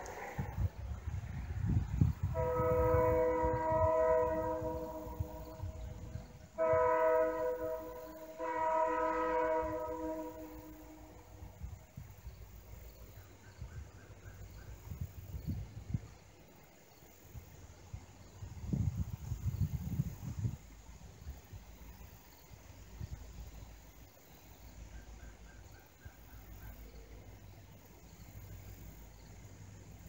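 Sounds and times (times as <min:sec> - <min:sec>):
diesel locomotive horn blasts: 0:02.0 - 0:11.8.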